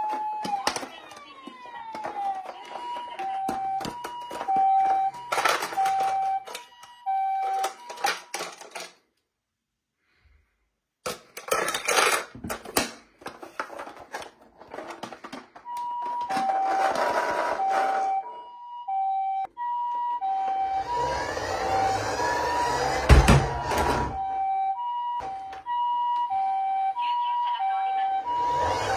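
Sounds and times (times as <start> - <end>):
toy two-tone siren: 0.0 - 8.8, 15.6 - 28.9.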